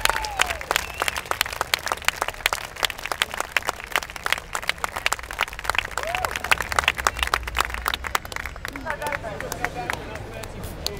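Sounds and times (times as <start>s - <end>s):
crowd applauding: 0.0s - 10.9s.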